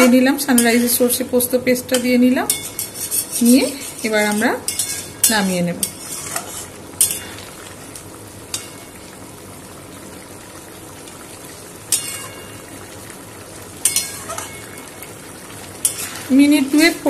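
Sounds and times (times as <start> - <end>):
metal spatula clinking on pan: 0.0 - 1.0, 1.9 - 7.3, 11.9 - 12.6, 13.8 - 14.8, 15.8 - 16.2
curry bubbling in a pan: 0.0 - 17.0.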